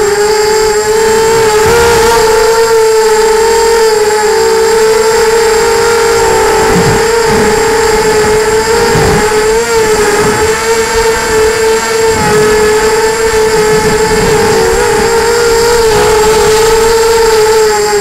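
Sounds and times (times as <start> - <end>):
drone motors whining: 0.0 - 18.0
wind rumble on microphone: 0.0 - 18.0.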